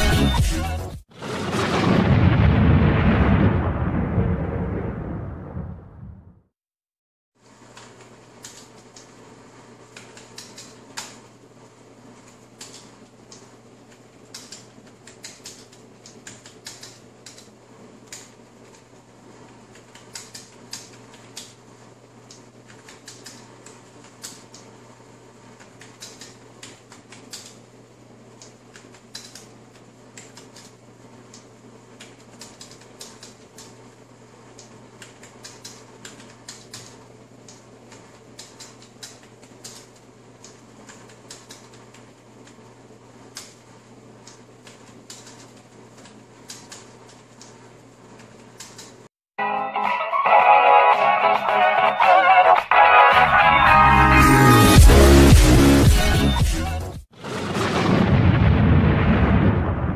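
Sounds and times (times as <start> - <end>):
computer keyboard typing: 10.0 - 11.2, 14.3 - 17.5, 19.7 - 21.5, 22.7 - 24.6, 25.6 - 27.6, 37.9 - 42.6, 44.6 - 47.5, 48.2 - 49.0.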